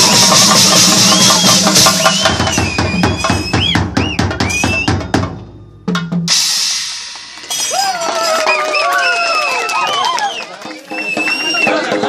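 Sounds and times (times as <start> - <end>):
cymbals: 0.0 - 8.4
drums and drum kit ensemble: 0.0 - 12.0.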